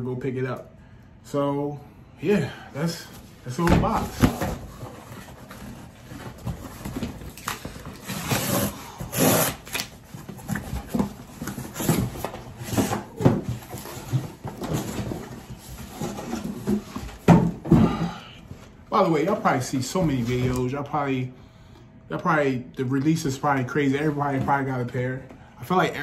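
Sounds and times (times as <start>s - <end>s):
cardboard scraping and rubbing: 3.6s - 17.2s.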